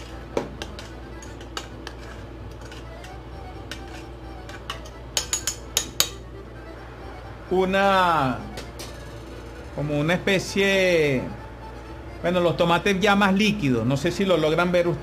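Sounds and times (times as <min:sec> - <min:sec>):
spoon clinking against pot: 0:00.0 - 0:02.8, 0:03.7 - 0:06.2
spoon stirring tomatoes in pot: 0:00.0 - 0:05.8.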